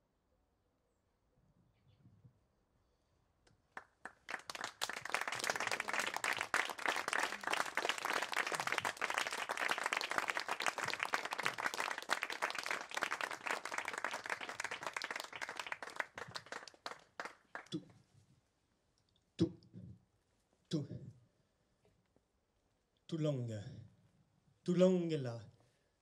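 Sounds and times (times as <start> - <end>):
audience applauding: 3.7 - 17.8.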